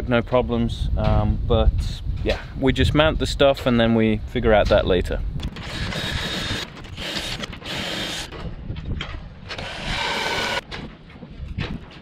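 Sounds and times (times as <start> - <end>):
cordless drill cutting fibreglass: 5.4 - 8.4, 9.5 - 10.6.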